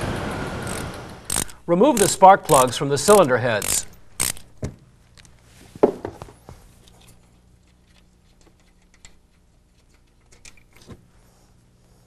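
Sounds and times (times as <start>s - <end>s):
ratchet wrench clicks and taps: 0.7s - 4.4s.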